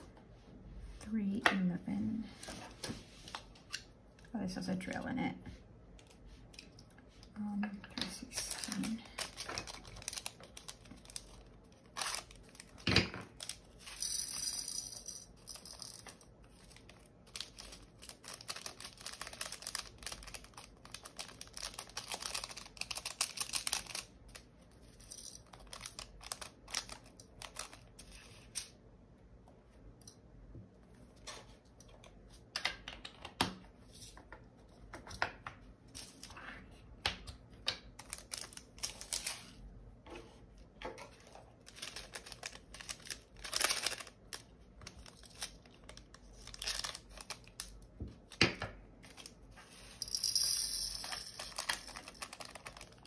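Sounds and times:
plastic crinkling and tearing: 0:08.3 - 0:13.6, 0:16.6 - 0:24.4, 0:38.0 - 0:39.5, 0:41.6 - 0:47.8, 0:51.5 - 0:53.0.

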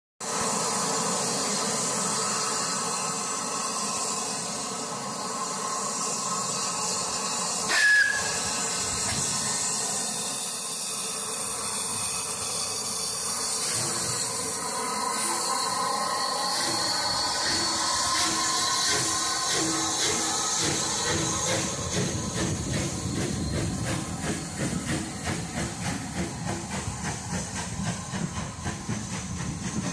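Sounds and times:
steam locomotive hissing: 0:00.2 - 0:29.9
train wheels rumbling on rails: 0:00.2 - 0:29.9
steam whistle blast: 0:05.9 - 0:14.4, 0:15.1 - 0:23.0.

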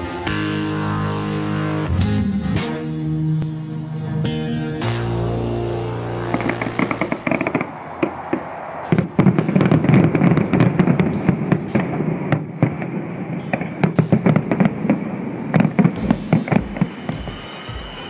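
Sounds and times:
low rumble: 0:01.8 - 0:04.0
fireworks bangs and crackles: 0:06.2 - 0:18.0.

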